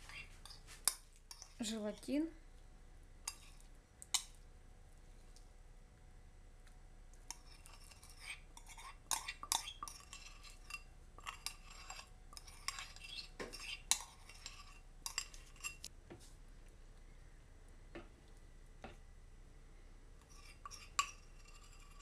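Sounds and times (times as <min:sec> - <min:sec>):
teaspoon scraping china cup: 0:07.3 - 0:15.8, 0:20.2 - 0:22.0.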